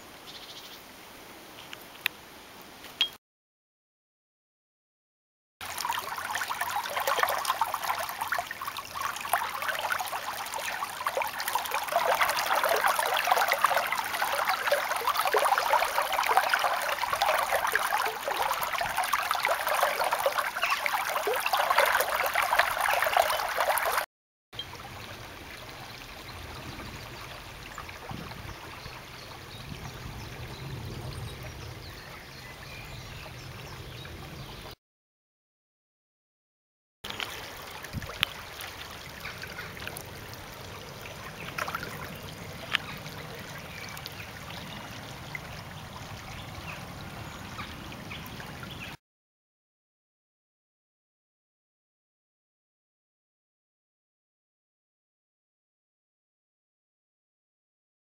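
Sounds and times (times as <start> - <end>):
stream water babbling: 5.6 - 34.8, 37.1 - 49.0.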